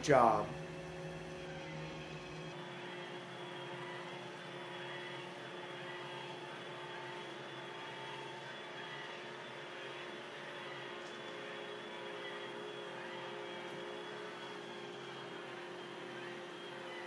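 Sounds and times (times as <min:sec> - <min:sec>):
robot vacuum whirring: 0:01.1 - 0:17.0.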